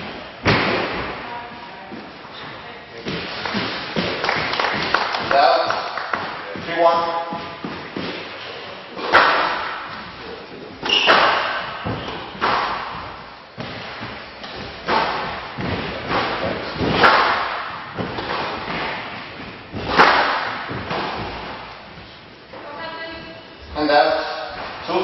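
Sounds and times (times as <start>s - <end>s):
squash ball smacking walls: 0.0s - 1.3s, 3.0s - 10.2s, 10.8s - 22.1s.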